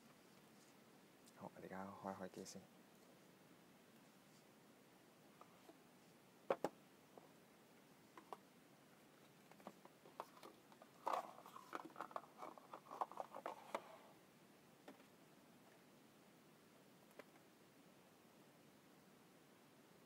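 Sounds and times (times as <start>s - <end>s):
cardboard rustling and scraping: 9.6s - 14.0s.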